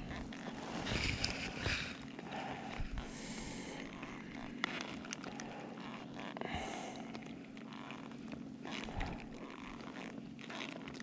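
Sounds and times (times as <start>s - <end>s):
rustling: 0.0s - 6.4s.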